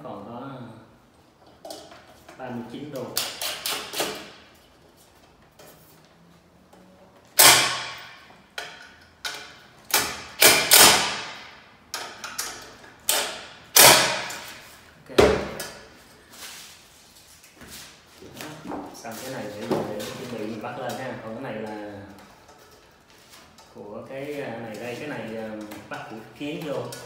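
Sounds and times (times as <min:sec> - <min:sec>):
impact driver bursts: 0:07.4 - 0:08.1, 0:09.9 - 0:11.5, 0:13.1 - 0:14.5.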